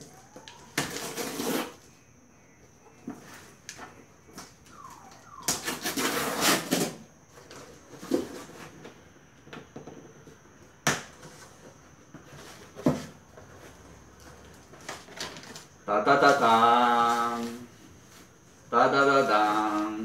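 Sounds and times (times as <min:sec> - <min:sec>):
tape scraping on cardboard: 0:00.8 - 0:01.9, 0:05.4 - 0:08.8
packing tape ripping: 0:05.5 - 0:07.0.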